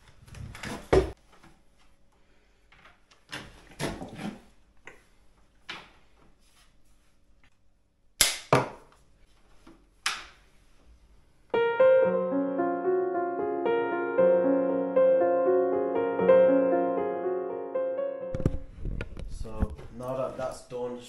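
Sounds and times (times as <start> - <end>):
piano music: 11.5 - 18.7.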